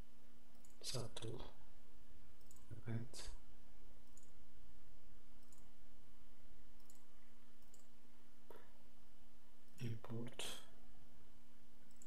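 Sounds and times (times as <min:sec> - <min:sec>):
low electrical hum: 0:00.0 - 0:12.0
microphone hiss: 0:00.0 - 0:12.0
computer mouse clicks: 0:00.5 - 0:00.8, 0:02.4 - 0:02.7, 0:04.0 - 0:04.4, 0:05.4 - 0:05.7, 0:06.8 - 0:07.9.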